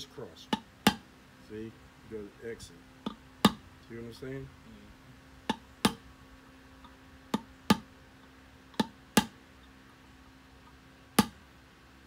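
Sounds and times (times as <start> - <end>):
hammer striking steel punch: 11.2 - 11.4.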